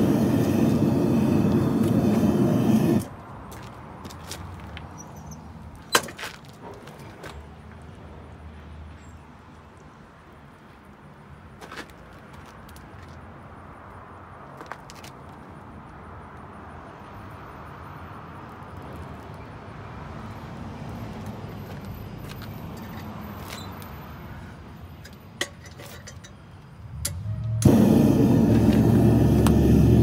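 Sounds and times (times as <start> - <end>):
furnace burner running: 0.0 - 3.1, 27.6 - 30.0.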